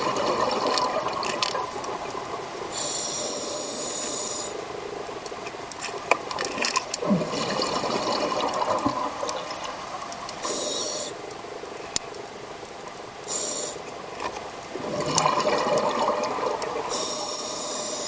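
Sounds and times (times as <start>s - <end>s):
exhaled bubbles underwater: 0.0s - 2.9s, 6.5s - 11.1s, 14.7s - 18.0s
regulator inhalation hiss: 2.7s - 4.8s, 10.4s - 11.2s, 13.3s - 13.9s, 16.8s - 18.0s.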